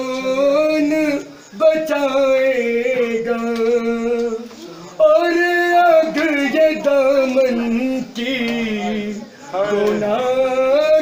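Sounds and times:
man chanting a mourning lament: 0:00.0 - 0:11.0.

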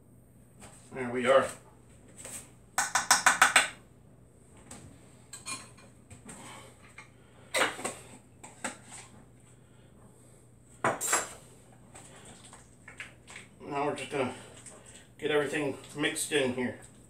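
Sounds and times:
utensils and jars knocking: 0:02.8 - 0:03.8.

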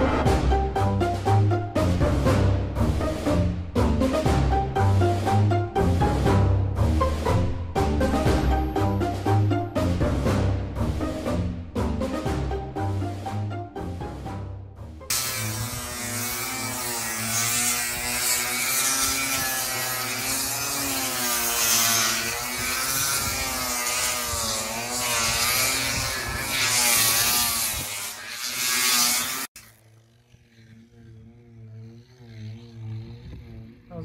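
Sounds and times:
music: 0:00.0 - 0:17.2
electric grinder on fiberglass: 0:15.1 - 0:34.0.

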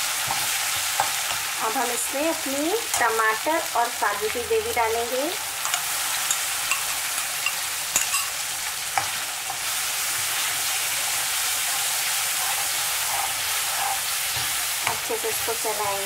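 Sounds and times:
paste sizzling in hot oil: 0:00.0 - 0:04.0, 0:05.4 - 0:16.0
metal spoon scraping a pan: 0:05.6 - 0:10.6, 0:11.5 - 0:16.0.

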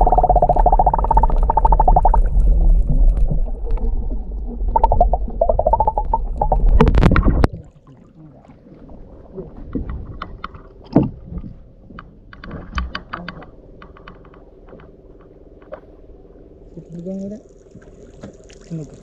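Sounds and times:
muffled underwater rumble and clicking: 0:00.0 - 0:18.4
water lapping and splashing: 0:06.1 - 0:13.3, 0:15.6 - 0:19.0.

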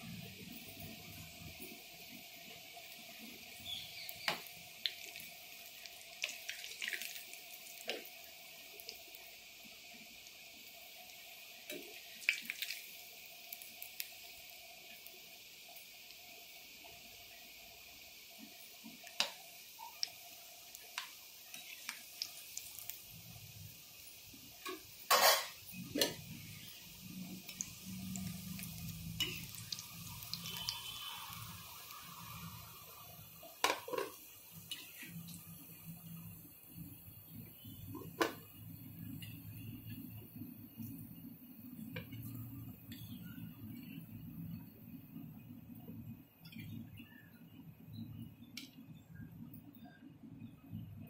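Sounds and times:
oil sizzling: 0:00.0 - 0:49.2
metal ladle clattering on plate: 0:25.1 - 0:25.6
metal spoon scraping pan: 0:25.1 - 0:26.2.

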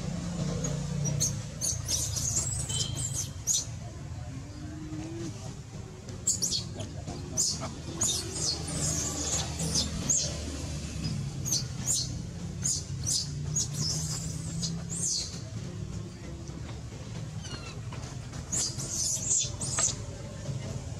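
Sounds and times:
baby monkey squeaking: 0:01.1 - 0:03.7, 0:06.2 - 0:06.8, 0:07.4 - 0:10.4, 0:11.4 - 0:15.3, 0:17.4 - 0:17.8, 0:18.5 - 0:20.0.

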